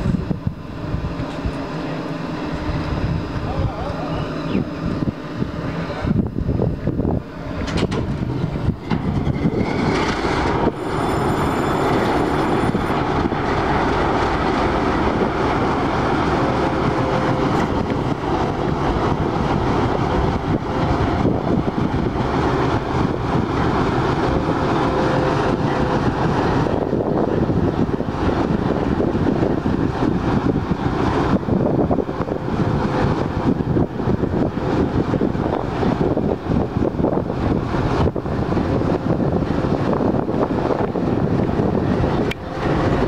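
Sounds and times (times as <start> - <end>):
diesel locomotive engine running: 0.0 - 43.0
high-pitched whine: 7.2 - 19.3.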